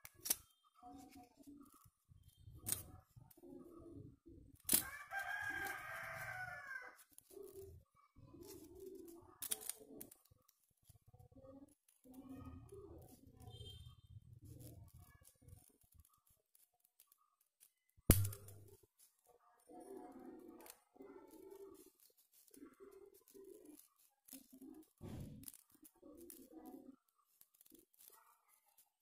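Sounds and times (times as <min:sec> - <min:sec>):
scissors clicking: 0:00.0 - 0:00.5, 0:08.4 - 0:10.2
crepe paper rustling: 0:04.4 - 0:29.0
rooster crowing: 0:04.8 - 0:07.0.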